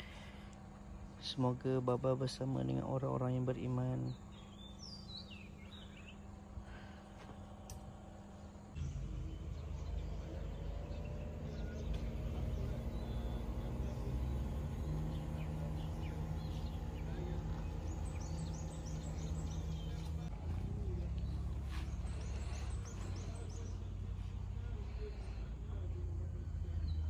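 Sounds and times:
birds chirping: 0.0 - 27.0
steady low rumble: 5.7 - 27.0.

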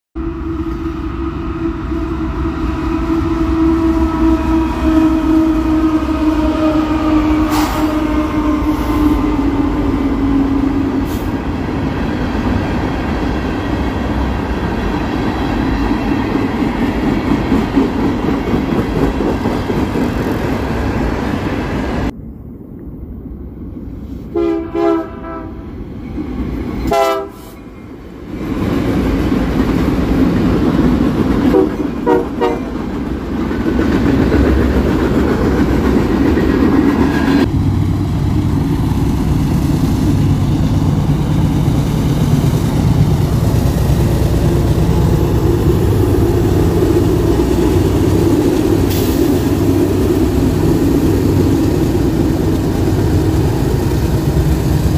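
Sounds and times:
train rumbling past: 0.2 - 54.9
locomotive air horn: 1.5 - 11.4, 24.3 - 25.6, 26.9 - 27.6, 31.5 - 32.7.

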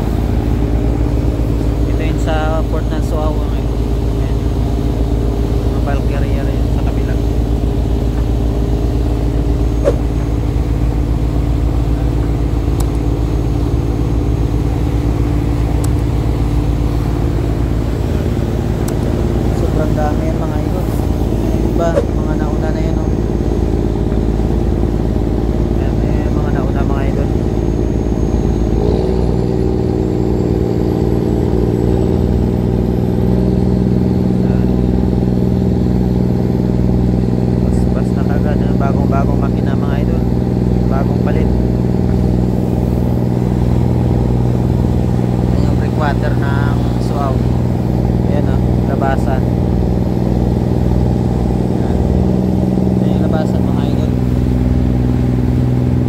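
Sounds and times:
rush of boat wake: 0.0 - 33.4, 40.0 - 56.0
boat engine droning: 0.0 - 56.0
water rushing along hull: 49.4 - 56.0.

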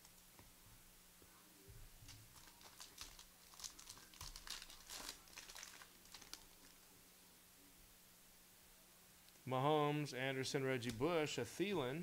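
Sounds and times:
plastic wrapper crinkling and tearing: 2.1 - 6.8.

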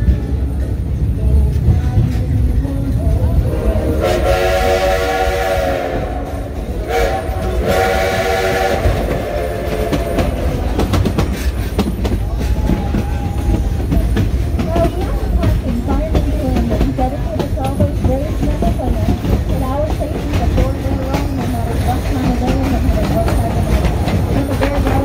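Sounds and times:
train rumble: 0.0 - 25.0
wheels clattering on track: 0.0 - 25.0
steam locomotive whistle blasts: 4.0 - 10.3.

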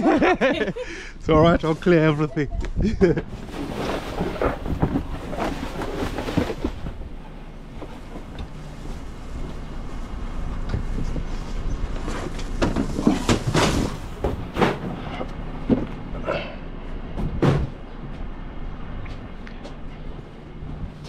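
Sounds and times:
truck engine running: 6.5 - 12.6.

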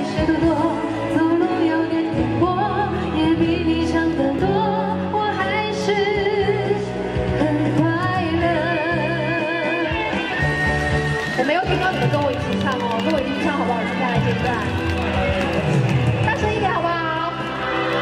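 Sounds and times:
woman singing pop ballad: 0.0 - 10.2.

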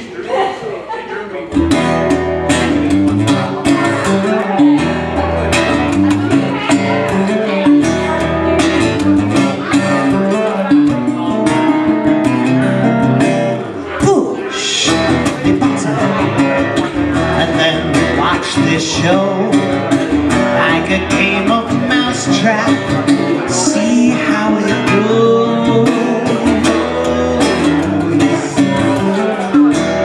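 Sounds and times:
acoustic bass guitar: 1.5 - 30.0
man singing: 14.0 - 30.0.

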